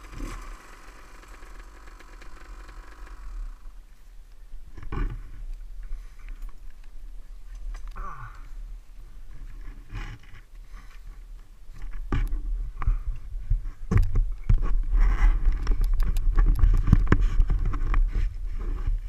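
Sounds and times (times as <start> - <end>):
dirt bike knocking and scraping: 0.0 - 3.8, 9.4 - 19.0.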